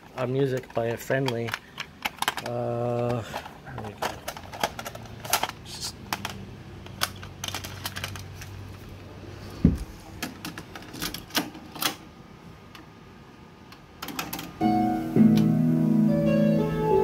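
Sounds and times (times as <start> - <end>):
handling clicks and knocks: 0.0 - 8.9, 9.7 - 12.0, 13.7 - 14.6.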